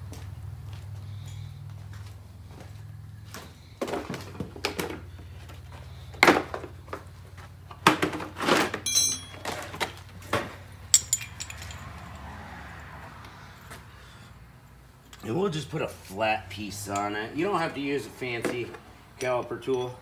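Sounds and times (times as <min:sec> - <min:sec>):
metallic ring: 0:08.8 - 0:09.5, 0:10.9 - 0:12.4
metal pieces clinking in case: 0:08.8 - 0:09.9, 0:10.9 - 0:12.2.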